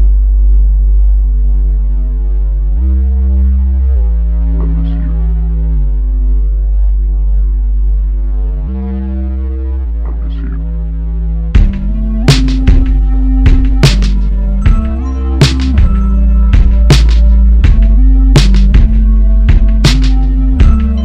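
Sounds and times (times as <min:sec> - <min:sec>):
deep bass drone: 0:00.0 - 0:21.0
synthesizer chords: 0:00.0 - 0:21.0.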